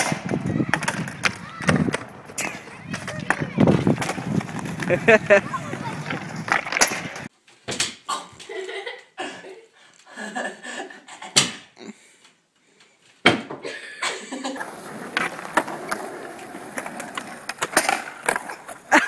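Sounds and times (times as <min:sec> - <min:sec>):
voices: 0:00.0 - 0:07.3.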